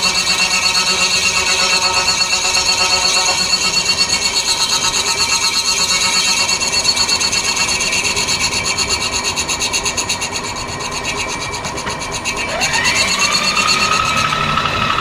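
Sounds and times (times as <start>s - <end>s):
milling machine cutting metal: 0.0s - 15.0s
rising machine whine: 0.0s - 15.0s.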